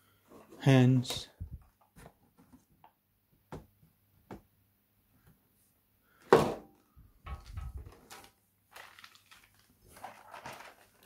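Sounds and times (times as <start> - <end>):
plastic clatter: 7.3 - 11.0
plastic packaging clicks and crinkles: 7.3 - 11.0.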